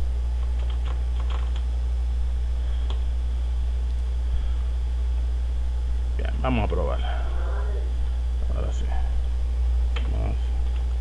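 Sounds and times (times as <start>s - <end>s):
low electrical hum: 0.0s - 11.0s
keyboard keystrokes: 0.4s - 1.6s.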